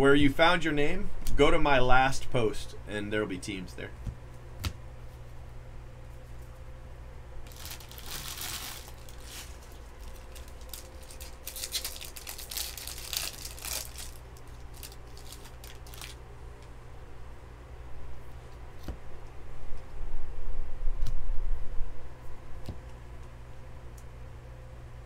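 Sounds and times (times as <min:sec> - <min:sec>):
steady low hum: 0:00.0 - 0:25.0
trading cards rustling: 0:07.5 - 0:16.2.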